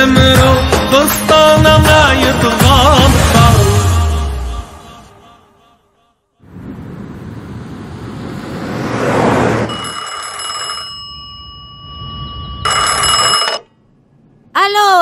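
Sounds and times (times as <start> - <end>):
rush of noise: 6.4 - 9.8
telephone ringing: 9.7 - 13.9.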